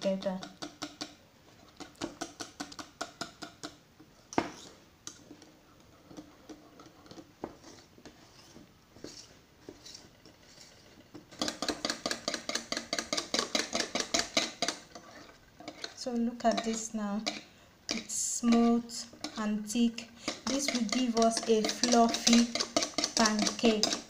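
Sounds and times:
whisk clicking against a plastic bowl: 0:00.4 - 0:01.2, 0:11.3 - 0:15.0, 0:15.7 - 0:24.0.

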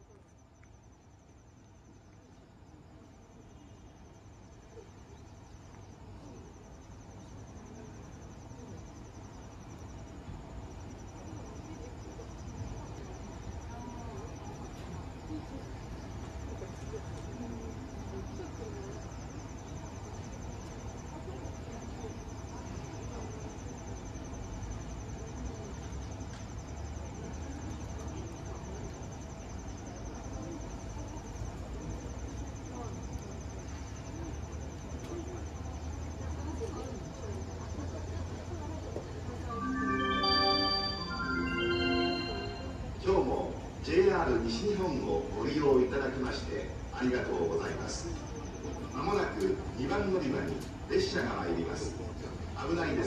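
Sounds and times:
cricket chirping trill: 0:00.0 - 0:53.0.

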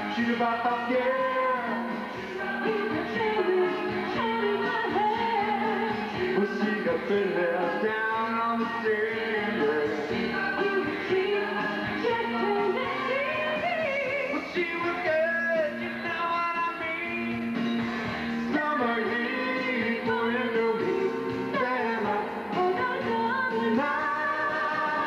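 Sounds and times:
man singing: 0:00.0 - 0:03.6, 0:06.2 - 0:11.3, 0:14.0 - 0:17.6, 0:18.4 - 0:25.0
backing music: 0:00.0 - 0:25.0
woman singing pop song: 0:00.0 - 0:25.0.

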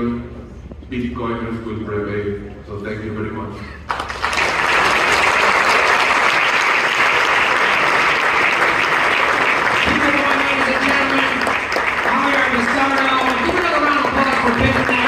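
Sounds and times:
audience applauding: 0:03.9 - 0:15.0.

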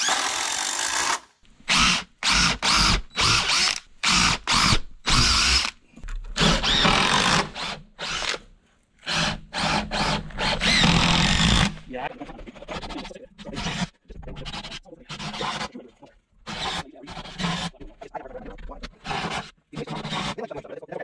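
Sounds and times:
cordless drill driving screws: 0:00.0 - 0:05.8, 0:06.4 - 0:11.8.

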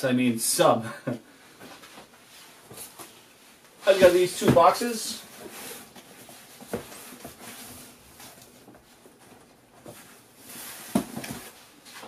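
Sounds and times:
cardboard box knocks and scuffs: 0:10.8 - 0:11.6.

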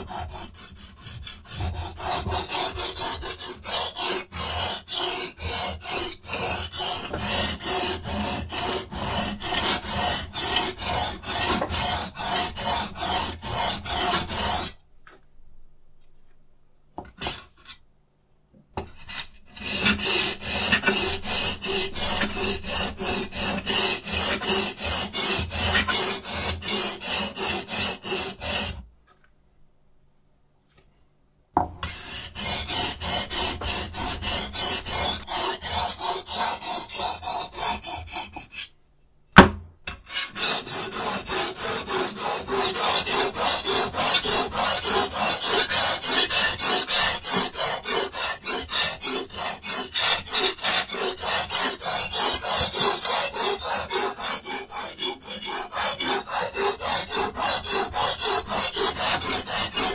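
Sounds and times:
knife rasping on sharpening stone: 0:00.1 - 0:14.8, 0:19.0 - 0:28.8, 0:39.9 - 0:59.9.

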